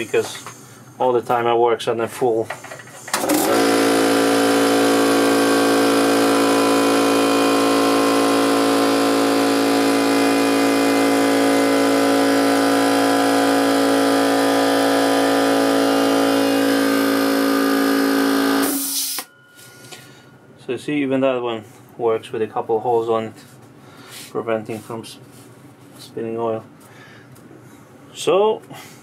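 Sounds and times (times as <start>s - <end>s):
air compressor running: 0.0s - 1.1s, 2.4s - 20.4s.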